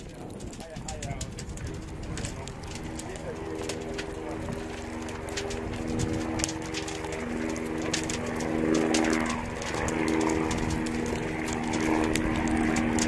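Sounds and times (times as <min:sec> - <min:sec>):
sharp crackles: 0:00.0 - 0:13.0
steady motor drone: 0:00.0 - 0:13.0.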